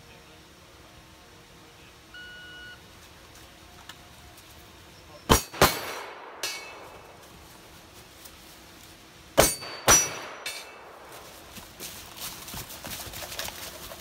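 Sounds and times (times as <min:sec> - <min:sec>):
rifle shots echoing: 0:05.3 - 0:07.2, 0:09.4 - 0:11.1.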